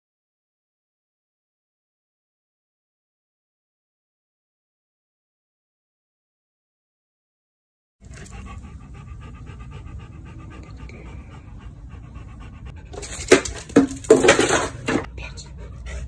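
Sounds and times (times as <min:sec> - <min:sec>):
dog panting: 0:08.0 - 0:16.0.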